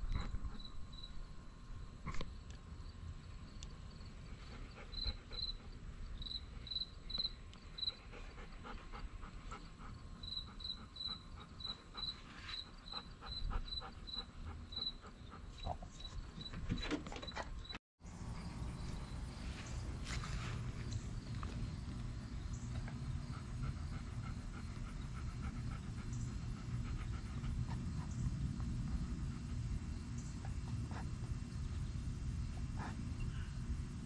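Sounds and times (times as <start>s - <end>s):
insect chirping: 0.5s - 1.9s, 4.9s - 8.0s, 10.2s - 15.0s
low background rumble: 18.1s - 34.0s.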